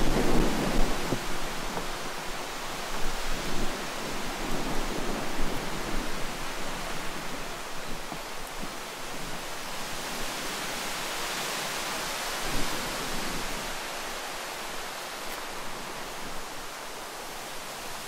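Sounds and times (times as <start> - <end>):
wind buffeting microphone: 0.0 - 17.1.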